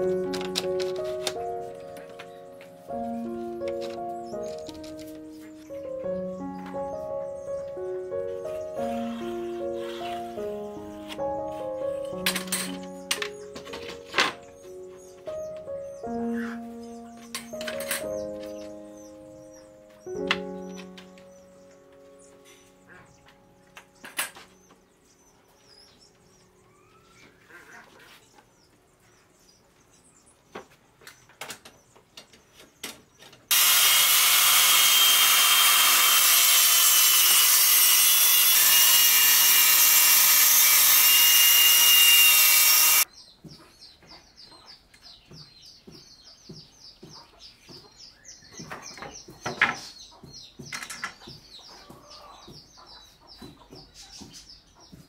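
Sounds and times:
birds chirping: 0.0s - 55.0s
circular saw cutting wood: 8.4s - 13.5s, 33.5s - 43.1s
knocks and taps of wood and tools: 30.5s - 33.5s, 44.9s - 52.8s, 53.4s - 55.0s.

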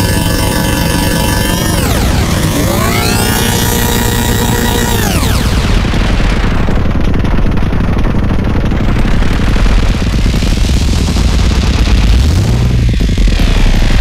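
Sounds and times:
falling pitch sweep: 0.0s - 8.2s
distorted electronic drum pattern: 0.0s - 14.0s
heavy low bass drum: 5.3s - 14.0s.

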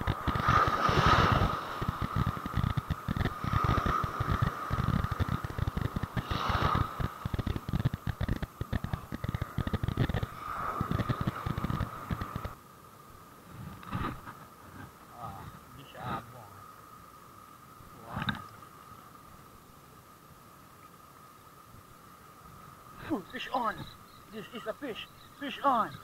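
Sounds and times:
wind buffeting microphone: 0.0s - 12.6s
waves washing in: 0.0s - 16.5s.

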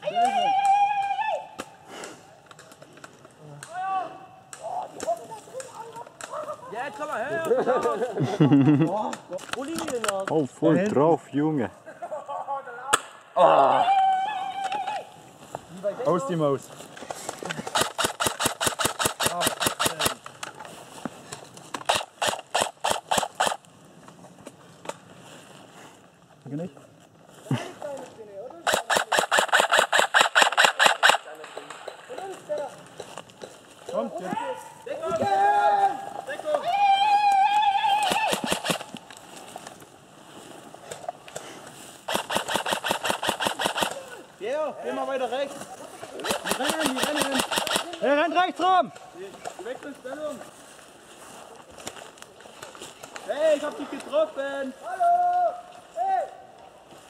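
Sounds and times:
footsteps in undergrowth: 15.0s - 18.2s, 19.8s - 28.6s, 31.3s - 57.0s
fast run of sharp clicks: 17.2s - 20.6s, 21.7s - 23.6s, 28.7s - 32.0s, 38.0s - 39.0s, 42.1s - 44.0s, 46.2s - 48.0s
sharp clicks: 17.3s - 20.6s, 21.7s - 23.6s, 28.7s - 33.5s, 38.0s - 39.2s, 42.1s - 44.0s, 46.2s - 48.0s
airsoft rifle shots: 17.6s - 20.3s, 21.8s - 23.6s, 28.6s - 32.1s, 38.0s - 39.0s, 42.1s - 44.1s, 46.2s - 48.1s.

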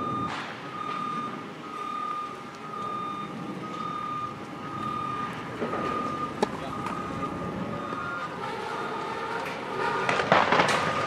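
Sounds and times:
electronic alarm beeping: 0.0s - 8.4s
outdoor background noise: 0.0s - 11.0s.

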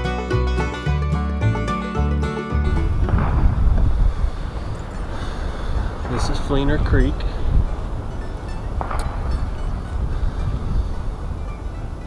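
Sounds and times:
wind buffeting microphone: 2.6s - 12.0s.

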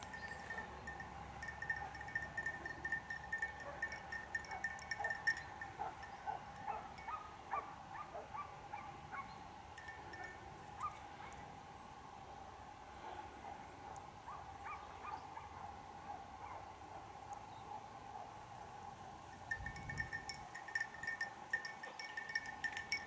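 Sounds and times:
small metal bell jingling: 0.0s - 7.2s, 9.8s - 10.5s, 19.4s - 23.0s
steady ringing tone: 0.0s - 7.2s, 9.8s - 10.7s, 19.3s - 23.0s.

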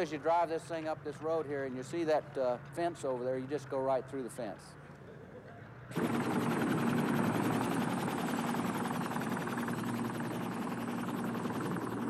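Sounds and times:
helicopter rotor beat: 5.9s - 12.0s.

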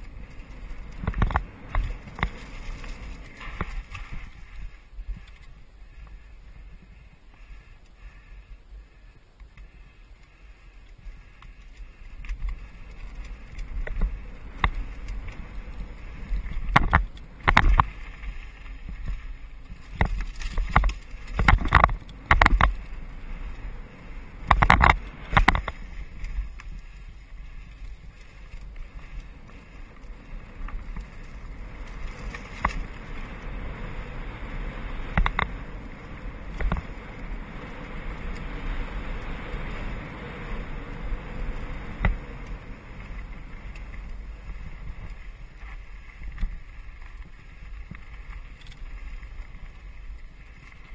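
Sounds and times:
bike tyre rumble: 0.0s - 50.9s
bike clacking and rattling: 10.8s - 23.6s, 24.2s - 33.8s.

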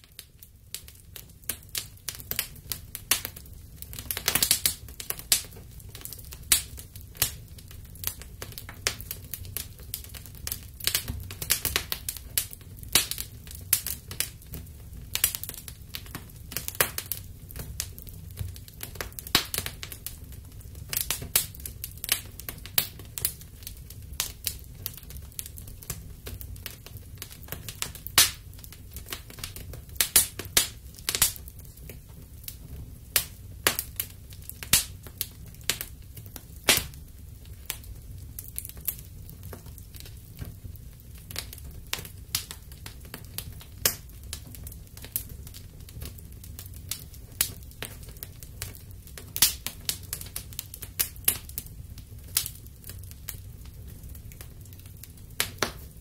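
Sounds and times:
low rumble of burning: 0.0s - 56.0s
wood fire crackling: 0.0s - 56.0s.

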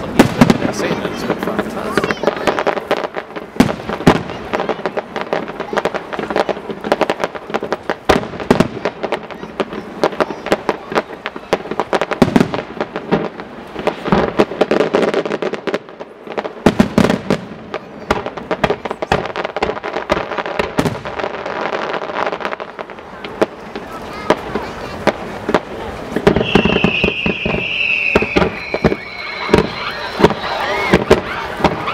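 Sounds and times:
firework shells bursting: 23.3s - 31.9s.

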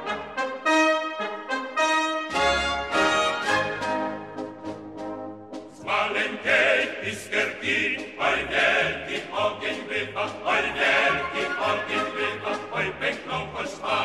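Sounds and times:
instrumental accompaniment: 0.0s - 14.0s
choir singing: 5.8s - 14.0s.

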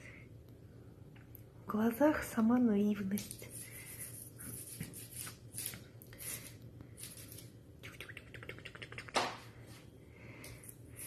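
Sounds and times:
kitten playing with feather toy: 3.1s - 7.6s.

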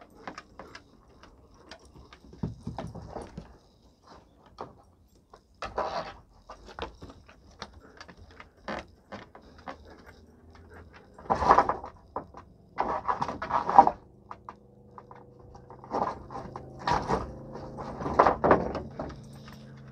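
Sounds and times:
dog claws scraping on wood: 0.0s - 19.9s
wooden boards clattering: 11.2s - 14.0s, 15.6s - 19.9s.

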